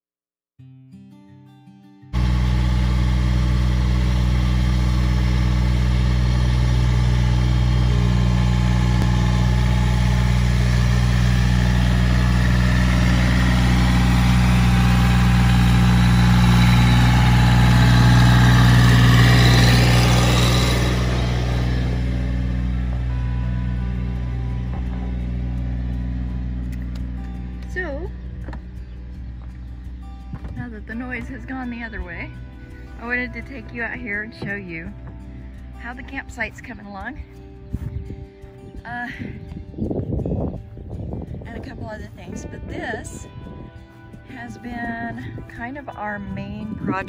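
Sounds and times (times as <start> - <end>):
tractor diesel engine driving by: 2.2 - 37.7.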